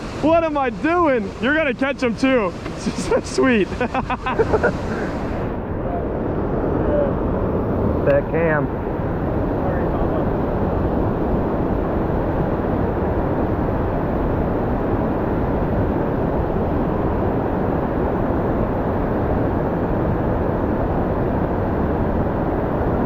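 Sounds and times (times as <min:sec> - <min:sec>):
river water rushing over rocks: 0:00.0 - 0:08.6.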